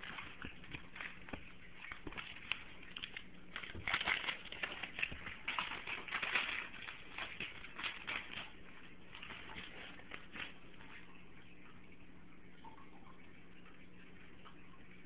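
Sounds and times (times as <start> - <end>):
paper crinkling: 0.0 - 11.6.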